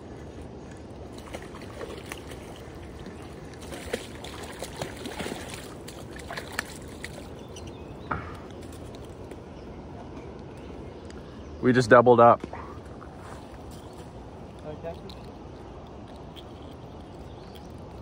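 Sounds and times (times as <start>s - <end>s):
water splashes: 0.0s - 9.0s.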